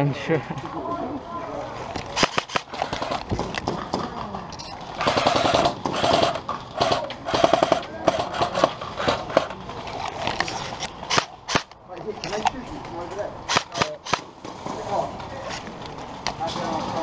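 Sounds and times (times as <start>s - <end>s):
airsoft guns firing bursts: 2.1s - 4.0s, 5.0s - 9.5s, 11.1s - 11.7s, 13.5s - 14.3s.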